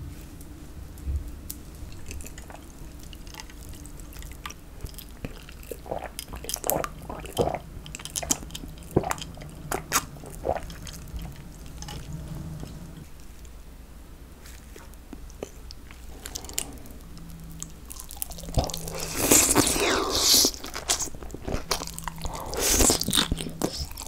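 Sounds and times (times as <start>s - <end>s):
gulping swallows: 2.1s - 13.0s, 16.0s - 24.0s.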